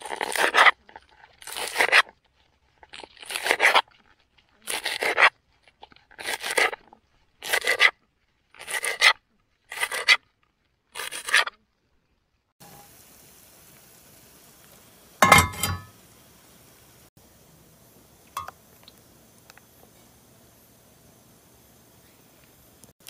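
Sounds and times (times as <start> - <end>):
frying pan clattering on burner: 15.2 - 16.0.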